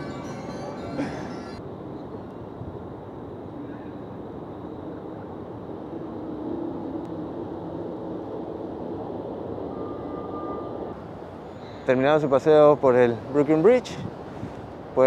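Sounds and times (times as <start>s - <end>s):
distant engines rumbling: 0.0s - 2.6s.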